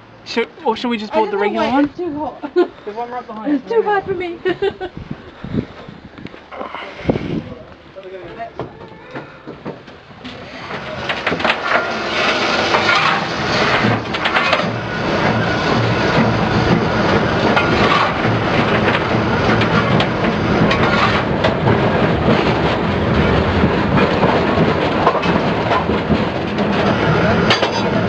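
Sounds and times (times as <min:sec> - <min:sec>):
steam tram rumbling and rattling: 0:00.0 - 0:28.0
wheels clacking on rails: 0:08.0 - 0:28.0.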